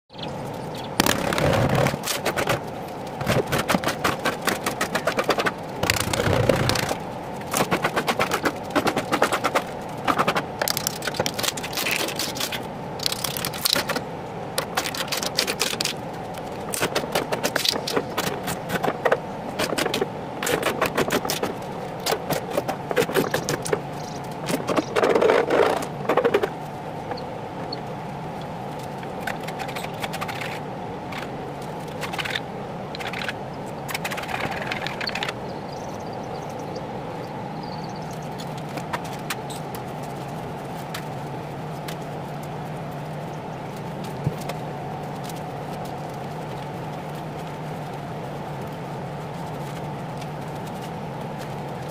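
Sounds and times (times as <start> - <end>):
steady hum: 0.1 - 51.9.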